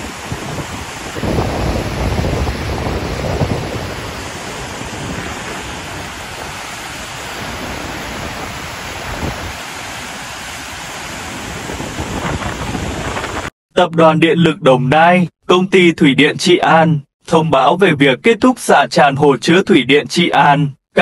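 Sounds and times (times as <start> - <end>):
floodwater roaring through spillway: 0.0 - 13.5
wind buffeting microphone: 0.0 - 13.5.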